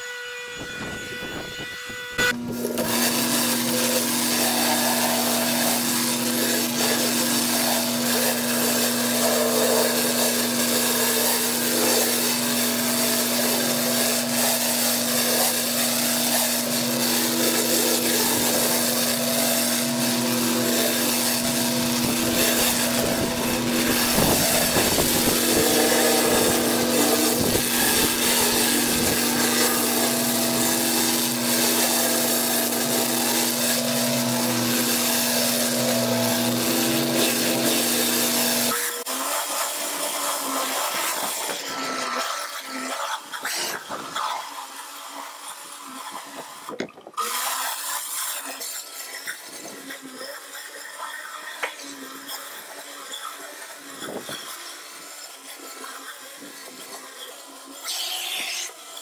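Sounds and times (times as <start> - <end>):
pressure washer engine hum: 2.4 - 39.1
water jet hissing: 2.5 - 58.6.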